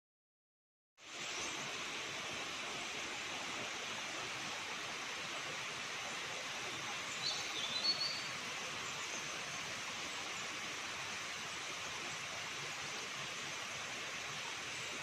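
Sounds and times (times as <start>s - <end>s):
bird chirping: 7.1s - 8.3s.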